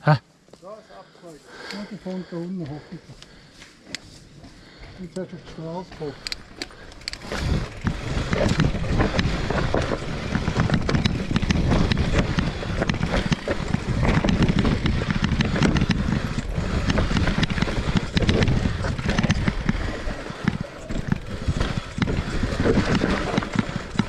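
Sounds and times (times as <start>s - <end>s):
bike knocking and rattling: 3.8s - 24.0s
tyres rumbling on dirt: 5.3s - 24.0s.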